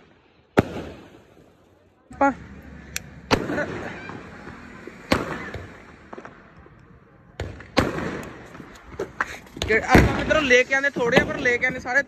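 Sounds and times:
firecrackers bursting: 0.0 - 12.0.

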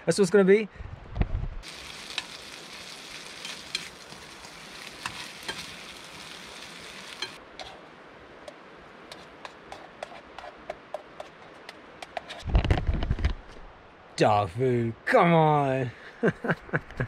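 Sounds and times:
meat sizzling in a frying pan: 1.6 - 7.4
utensil scraping a pan: 1.7 - 7.8.

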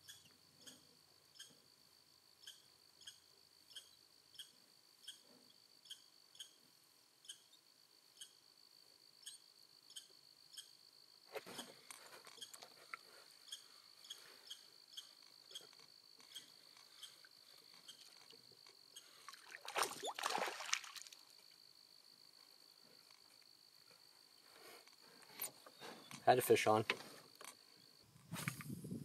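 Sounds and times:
insect chirps: 0.0 - 29.0
insects buzzing: 0.0 - 29.0.

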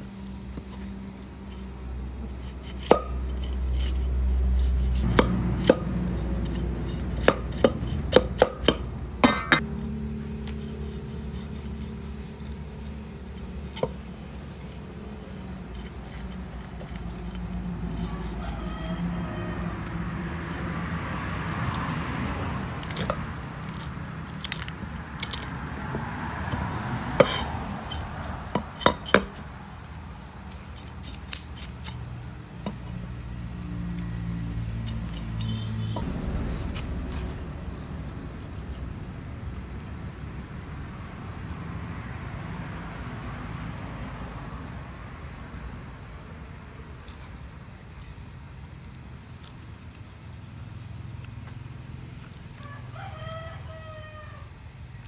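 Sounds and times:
knife scraping fish scales: 0.8 - 9.6, 10.2 - 21.2, 27.2 - 36.0.

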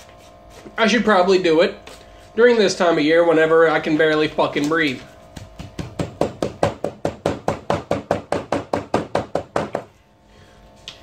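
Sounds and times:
rapid chopping taps: 5.3 - 9.9.

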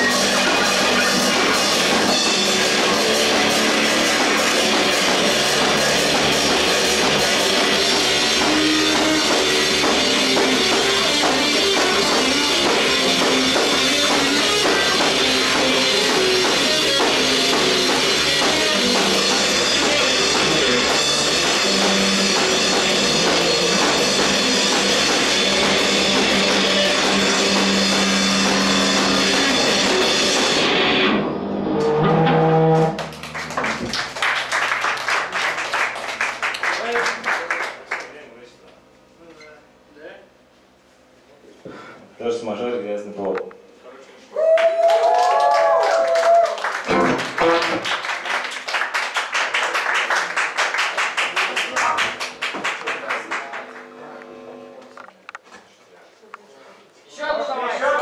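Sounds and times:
rock band playing live: 0.0 - 35.5, 46.7 - 47.9.

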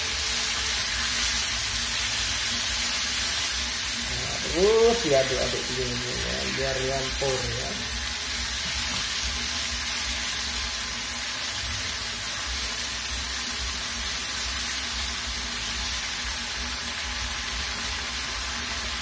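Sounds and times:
food sizzling in oil: 0.0 - 19.0.

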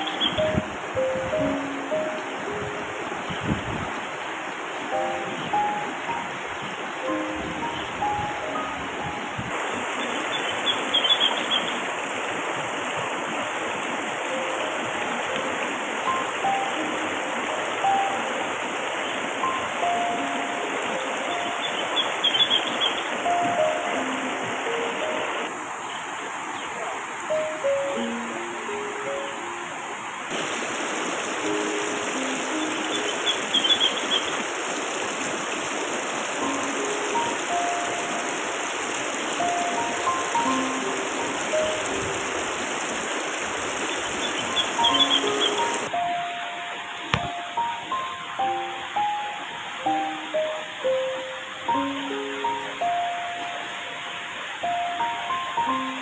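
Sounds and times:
soft background music: 0.0 - 4.0, 4.8 - 9.5, 14.1 - 25.8, 27.2 - 30.3, 31.3 - 34.3, 36.4 - 42.6, 44.5 - 56.0
river rushing over rocks: 0.0 - 56.0
high chirps: 44.2 - 46.2.

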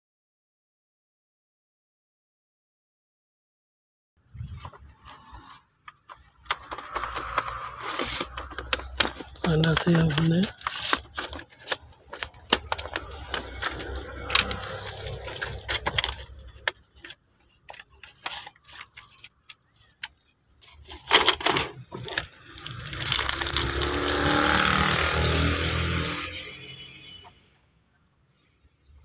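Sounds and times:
plastic clicking and rattling: 5.8 - 25.2.

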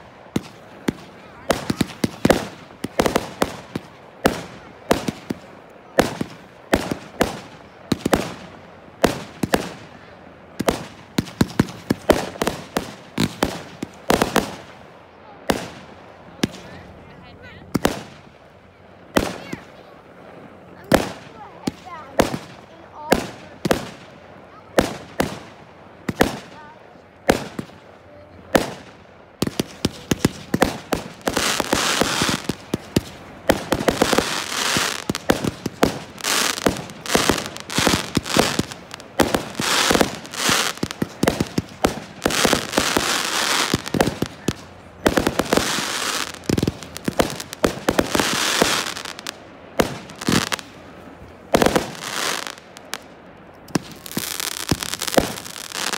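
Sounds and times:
firework shells bursting with bangs: 0.0 - 16.6, 28.5 - 50.8, 53.6 - 55.9
rapid firework popping and crackling: 0.0 - 17.1, 17.7 - 18.5, 19.1 - 20.0, 20.8 - 55.9.

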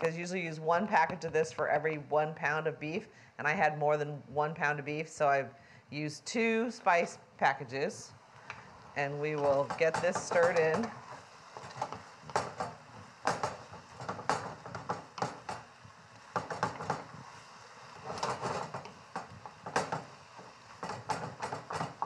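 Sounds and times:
utensil scraping metal skillet: 8.4 - 22.0.

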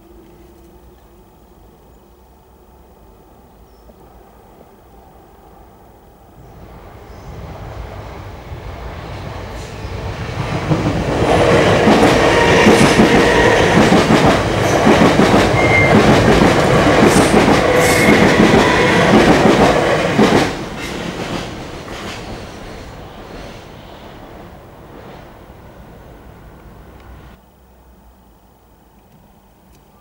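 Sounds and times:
train wheels rumbling on rails: 6.4 - 27.4.

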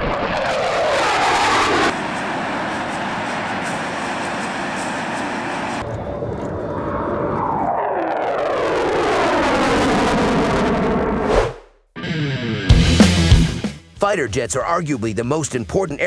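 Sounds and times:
jet engine noise: 0.0 - 11.4
jet passing by: 0.0 - 11.6.

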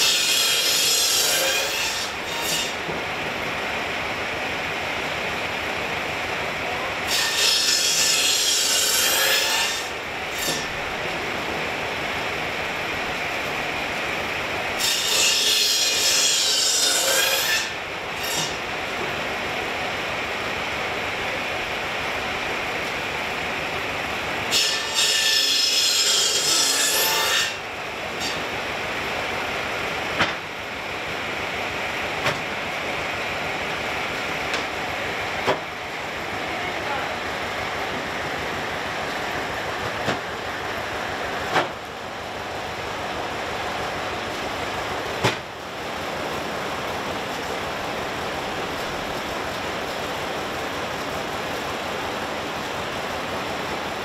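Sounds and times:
saw cutting through log: 0.0 - 3.0, 6.8 - 11.3, 11.9 - 19.0, 23.6 - 28.7.

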